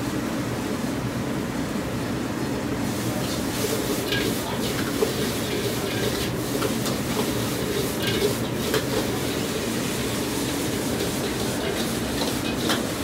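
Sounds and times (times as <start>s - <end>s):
metal spatula scraping a wok: 3.3s - 13.0s.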